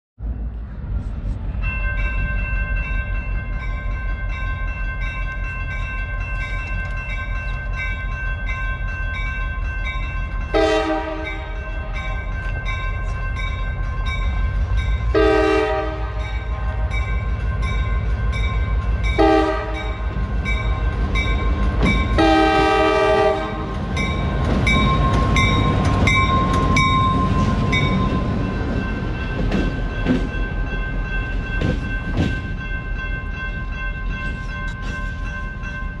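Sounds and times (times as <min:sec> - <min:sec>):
diesel locomotive engine rumbling: 0:00.2 - 0:36.0
locomotive horn blasts: 0:10.5 - 0:12.3, 0:15.1 - 0:17.2, 0:19.2 - 0:20.1, 0:22.1 - 0:23.8
bell ringing: 0:23.9 - 0:36.0.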